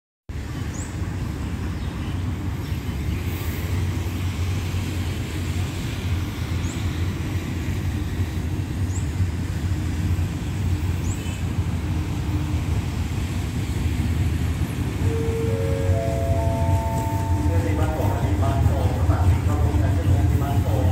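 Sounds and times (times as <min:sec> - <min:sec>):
distant road traffic rumble: 0:00.3 - 0:20.9
faint high chirps: 0:15.0 - 0:17.7.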